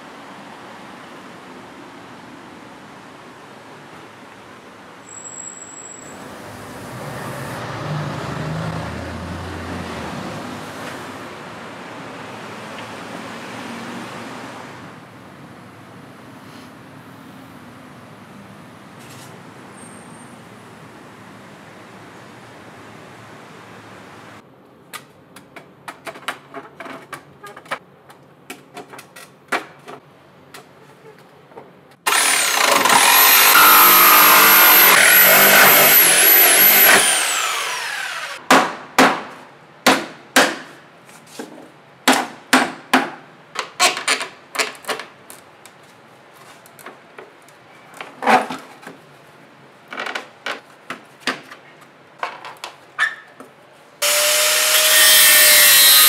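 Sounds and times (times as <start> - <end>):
angle grinder: 32.1 - 38.4, 54.0 - 56.0
power tool whining: 32.1 - 38.4, 54.0 - 56.0.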